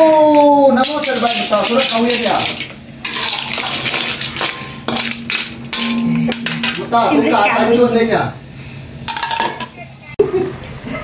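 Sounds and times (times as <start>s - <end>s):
metal spatula scraping a wok: 0.8s - 6.8s.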